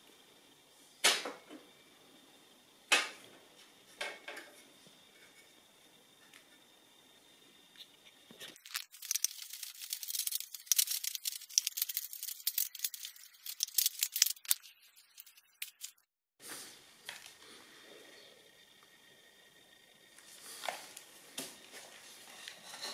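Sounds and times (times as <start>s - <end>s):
scraping and clicking handling noises: 7.8s - 16.0s.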